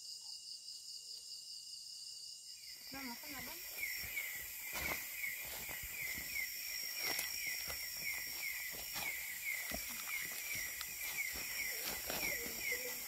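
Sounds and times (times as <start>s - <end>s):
insect steady high buzz: 0.0s - 13.0s
footsteps and rustling through grass: 3.0s - 13.0s.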